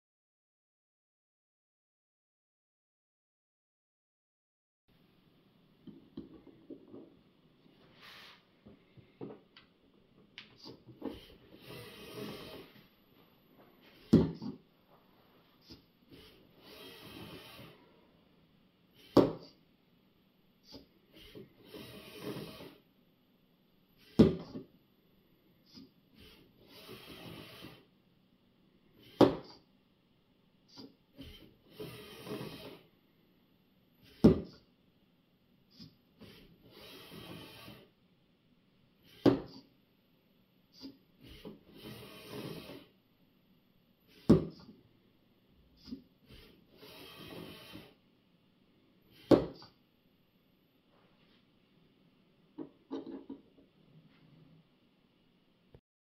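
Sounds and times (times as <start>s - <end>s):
robot arm motors whirring: 10.6s - 12.8s, 15.6s - 17.8s, 19.0s - 19.5s, 20.6s - 22.8s, 25.7s - 27.9s, 29.0s - 29.6s, 30.7s - 32.8s, 35.7s - 37.9s, 39.0s - 39.7s, 40.7s - 42.9s, 45.8s - 48.0s.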